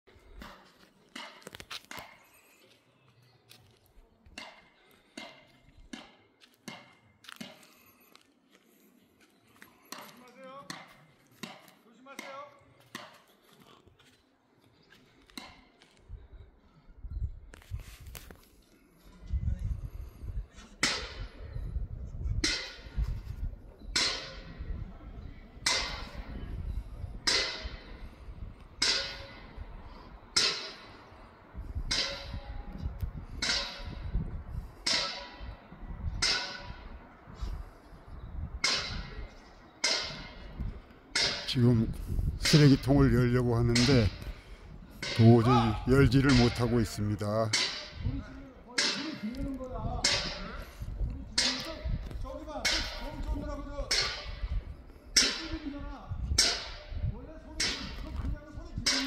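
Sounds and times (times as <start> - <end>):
faint footsteps walking slowly: 0.1 - 16.8.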